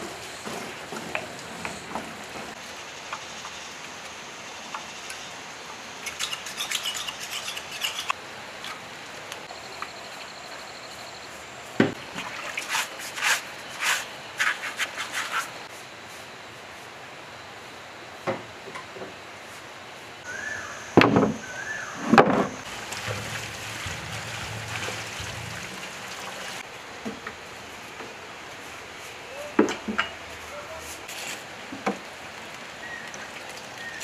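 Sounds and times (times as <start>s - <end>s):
bristle brush scrubbing: 12.6s - 15.6s
fluid pouring onto metal: 22.7s - 26.6s.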